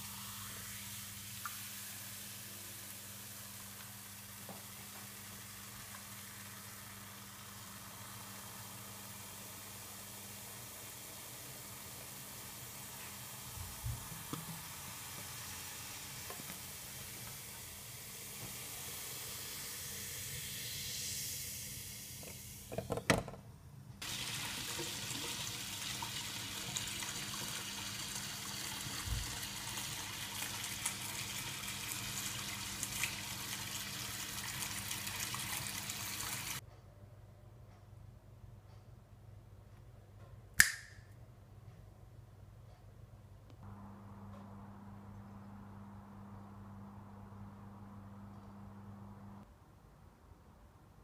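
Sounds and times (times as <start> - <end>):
carbonated fizz crackling: 24.0 - 36.6
cola pouring into a metal pot: 24.0 - 36.6.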